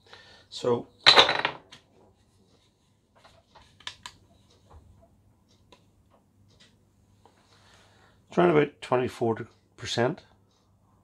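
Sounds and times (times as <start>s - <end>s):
faint clicks and light taps: 1.8s - 7.8s.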